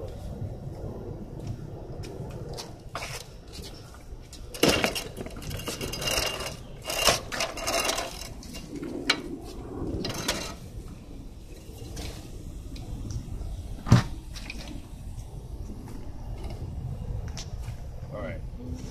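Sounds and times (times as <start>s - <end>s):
moped clanking and rattling: 4.5s - 9.3s, 10.0s - 10.7s.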